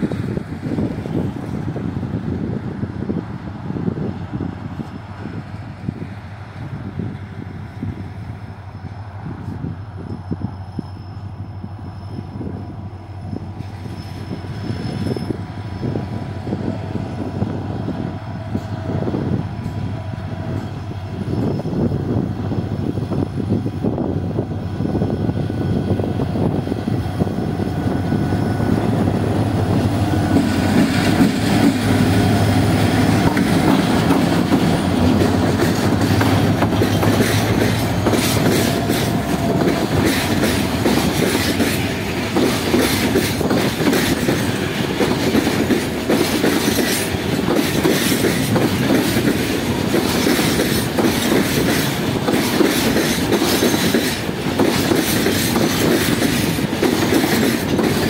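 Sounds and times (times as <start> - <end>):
locomotive engine passing: 0.0 - 58.0
wheels clacking over rail joints: 28.5 - 58.0.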